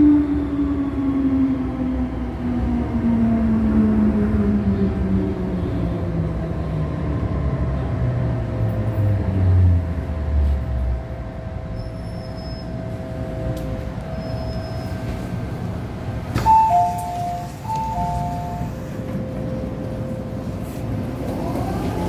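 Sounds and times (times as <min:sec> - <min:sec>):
two-note door chime: 0:16.4 - 0:18.7.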